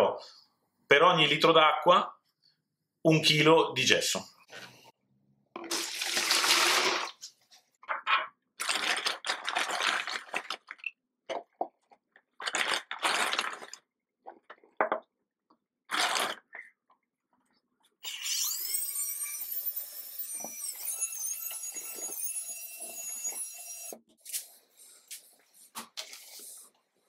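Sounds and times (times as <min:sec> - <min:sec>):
powder pouring into water: 0:05.6 - 0:07.3, 0:08.6 - 0:10.8, 0:12.4 - 0:13.9, 0:15.9 - 0:16.5
drill mixer motor whine: 0:18.0 - 0:24.0.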